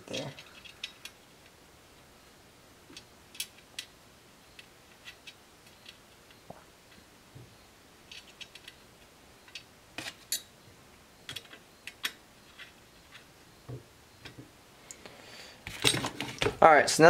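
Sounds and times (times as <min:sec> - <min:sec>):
small metallic clicks: 0:00.1 - 0:01.6, 0:02.9 - 0:03.9, 0:08.0 - 0:10.5, 0:11.2 - 0:13.3.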